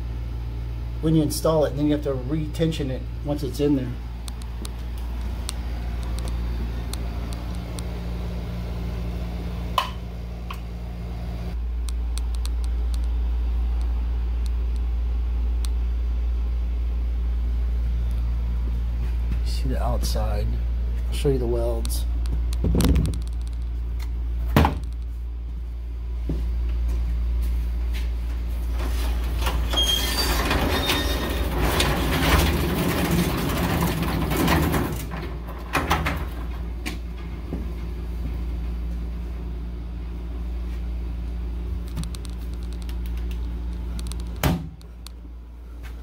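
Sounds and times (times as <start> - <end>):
steady low hum: 0.0 - 46.0
garage door rollers rumbling and squeaking: 28.6 - 38.0.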